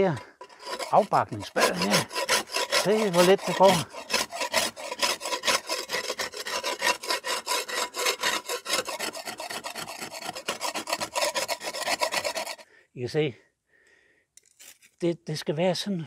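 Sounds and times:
spade scraping plaster wall: 0:00.0 - 0:12.6.

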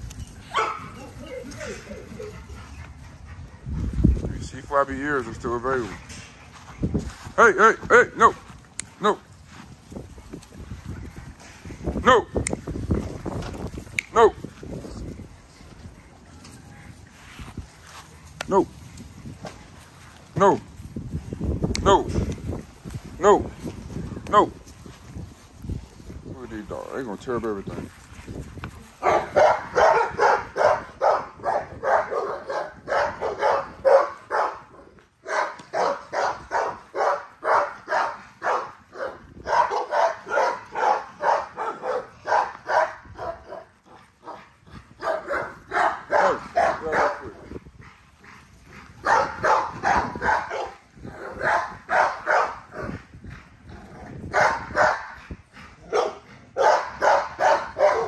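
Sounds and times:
dog barking: 0:00.5 - 0:01.1, 0:29.0 - 0:44.4, 0:45.0 - 0:47.4, 0:49.0 - 0:53.0, 0:54.3 - 0:55.2, 0:55.8 - 0:58.0.

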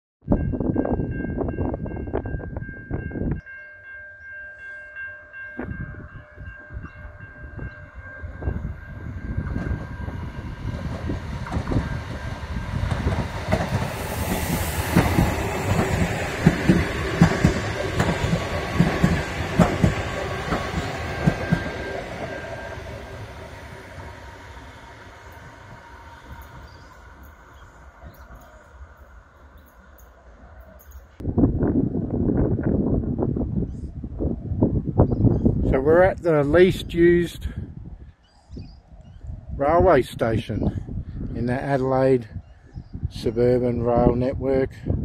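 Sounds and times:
train passing: 0:00.3 - 0:31.2
wheels clicking over rail joints: 0:10.7 - 0:23.0.

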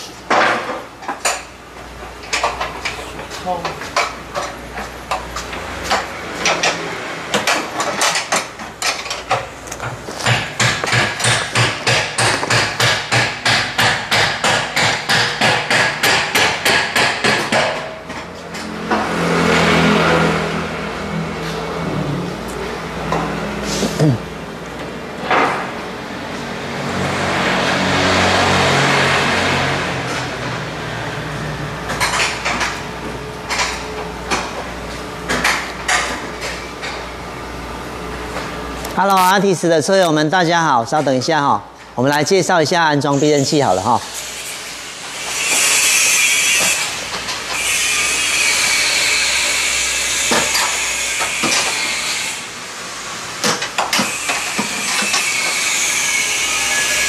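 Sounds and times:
workshop hum: 0:00.0 - 0:57.0
hammer striking metal: 0:10.2 - 0:18.1.

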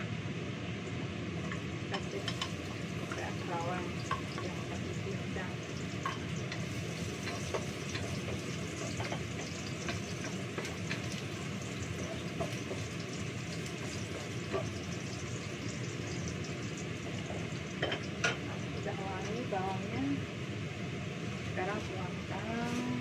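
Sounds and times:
food hissing on the stove: 0:00.0 - 0:23.0
kitchen utensils clinking: 0:01.4 - 0:05.1, 0:05.9 - 0:11.2, 0:17.0 - 0:18.5.

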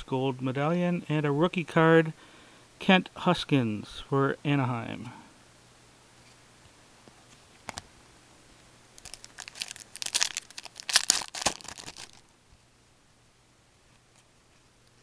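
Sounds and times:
foil wrapper crinkling and tearing: 0:09.0 - 0:12.3.

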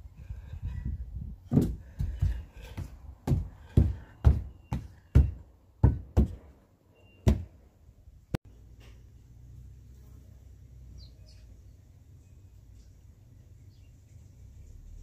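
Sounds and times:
dull knocks: 0:01.5 - 0:06.5, 0:07.2 - 0:07.6
faint high chirps: 0:06.9 - 0:07.3.

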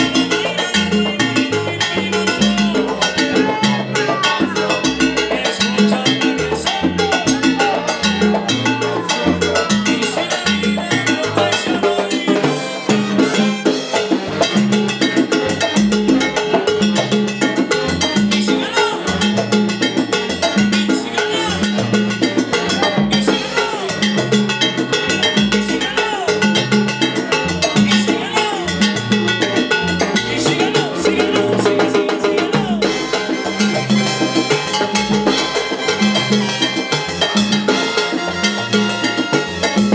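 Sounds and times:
live salsa band playing: 0:00.0 - 0:39.9.

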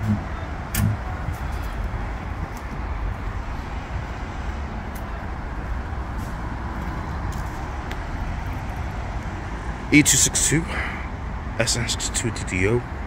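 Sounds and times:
bus diesel engine idling: 0:00.0 - 0:13.0.

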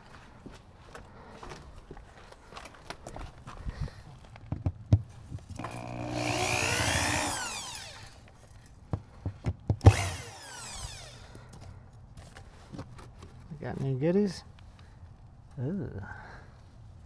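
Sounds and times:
power drill motor whining: 0:05.6 - 0:08.2, 0:09.8 - 0:11.4.

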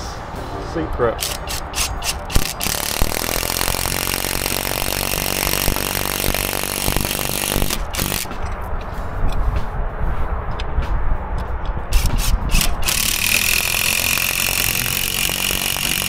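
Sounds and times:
impact driver driving screw: 0:01.2 - 0:08.5, 0:11.9 - 0:16.0.

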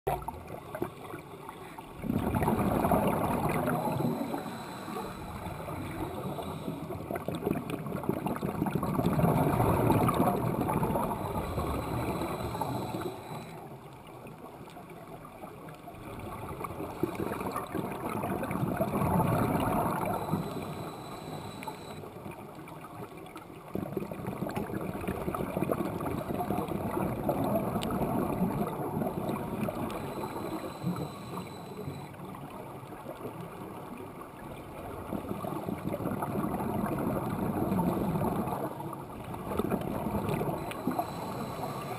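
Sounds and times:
bubbles from exhalation: 0:02.0 - 0:04.3
scuba regulator breathing underwater: 0:02.0 - 0:07.5, 0:08.9 - 0:13.8, 0:16.8 - 0:22.2, 0:25.9 - 0:32.2, 0:39.7 - 0:41.9.

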